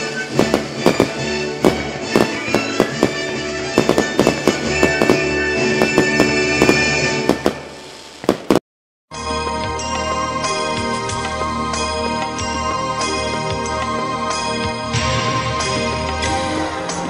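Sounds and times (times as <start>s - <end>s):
fireworks bangs and crackles: 0.0s - 8.6s
music with sustained tones: 9.2s - 17.0s.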